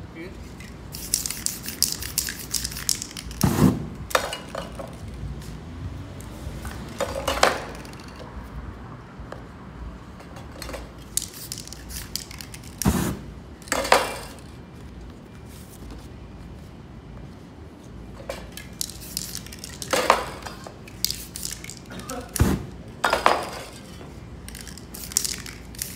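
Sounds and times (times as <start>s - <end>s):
spray paint hissing: 0.4s - 3.9s, 11.0s - 13.7s, 18.5s - 22.8s, 24.4s - 25.9s
metal cans clinking: 18.3s - 22.4s, 24.5s - 25.9s.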